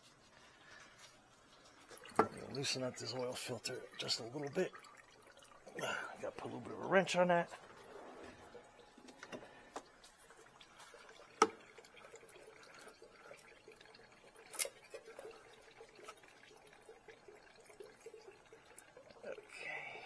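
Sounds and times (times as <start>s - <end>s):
oil trickling into a pan: 0.0s - 20.0s.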